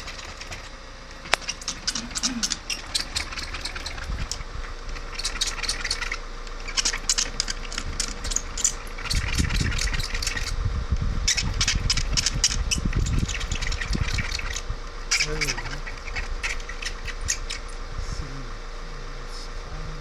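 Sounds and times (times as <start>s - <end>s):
low rumble: 3.9s - 7.1s, 7.8s - 20.0s.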